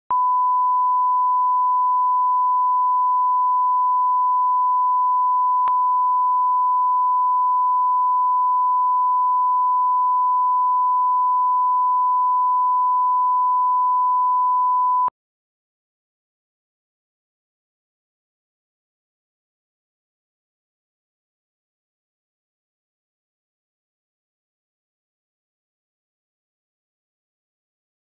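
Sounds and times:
steady sine tone: 0.1s - 15.1s.

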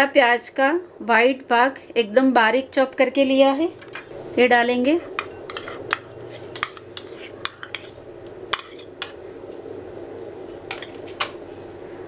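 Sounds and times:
steady low hum: 0.0s - 12.0s
metal spoon scraping bowl: 4.8s - 9.2s.

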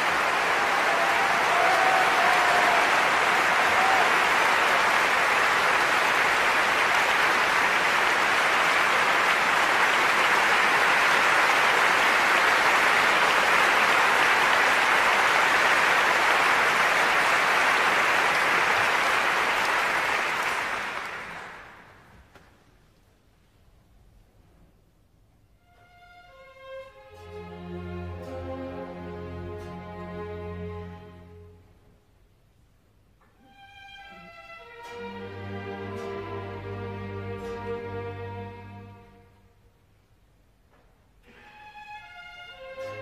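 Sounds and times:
audience applauding: 0.0s - 22.4s.

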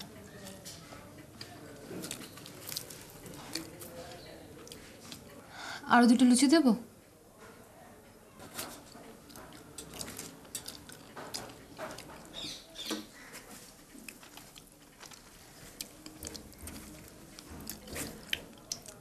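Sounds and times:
person chewing and tearing bread: 1.4s - 5.3s, 8.8s - 19.0s.

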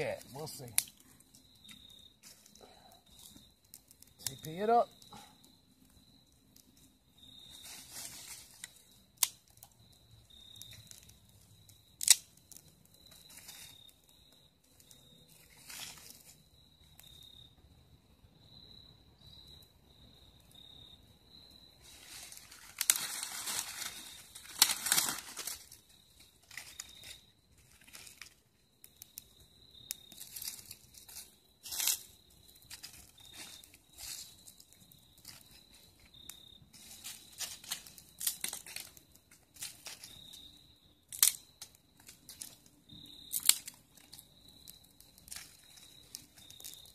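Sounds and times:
dry leaves and twigs rustling: 0.0s - 5.3s, 6.2s - 17.2s, 21.8s - 29.2s, 29.9s - 46.9s
twigs snapping: 0.8s - 1.0s, 7.6s - 9.7s, 12.0s - 13.6s, 22.1s - 28.4s, 36.8s - 39.0s, 41.1s - 42.6s, 43.2s - 46.9s.

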